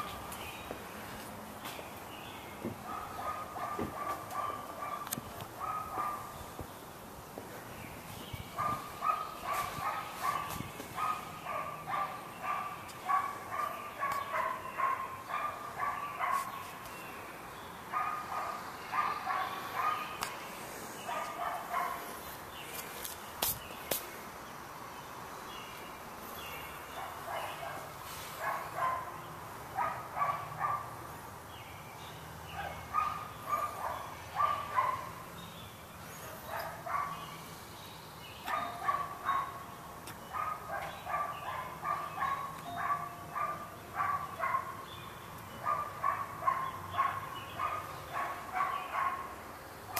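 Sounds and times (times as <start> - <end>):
dog yapping: 2.8 - 6.3, 36.5 - 37.1, 38.5 - 39.6, 45.6 - 49.2.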